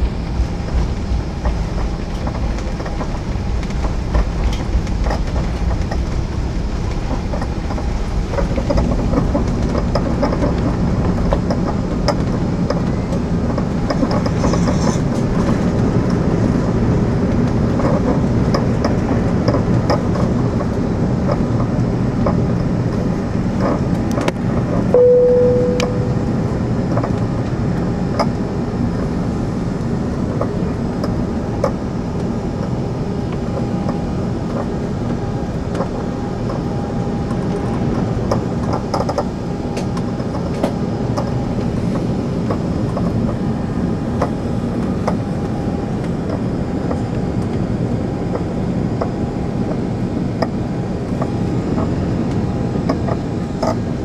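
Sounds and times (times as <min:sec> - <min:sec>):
jet engines at take-off thrust: 0:00.0 - 0:54.0
wheels rumbling on runway: 0:00.0 - 0:54.0
brief cabin tone: 0:24.9 - 0:26.8.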